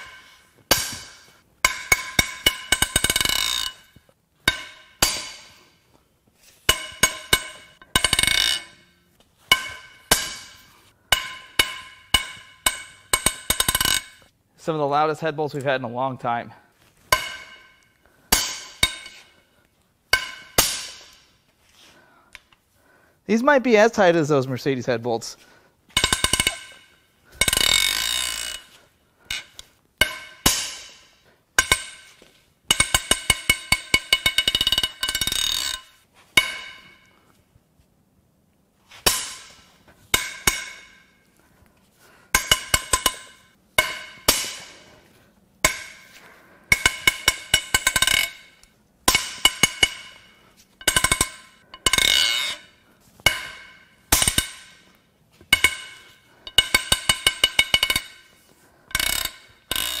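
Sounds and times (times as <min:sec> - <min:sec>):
bolts cracking loose with metallic ring: 0:00.0 - 0:05.5, 0:06.7 - 0:08.9, 0:09.5 - 0:14.3, 0:25.9 - 0:37.2, 0:42.3 - 0:45.0, 0:45.6 - 1:00.0
ratchet clicking: 0:27.4 - 0:29.4, 0:50.8 - 0:52.6, 0:58.9 - 1:00.0.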